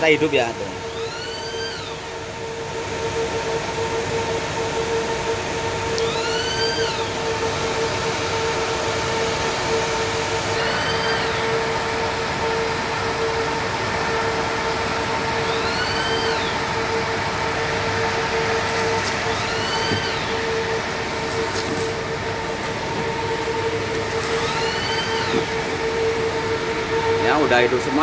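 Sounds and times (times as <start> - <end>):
electric fan whirring: 0.0 - 28.0
rising and falling chirp: 6.0 - 7.1, 10.6 - 11.6, 15.4 - 16.6, 24.4 - 25.6.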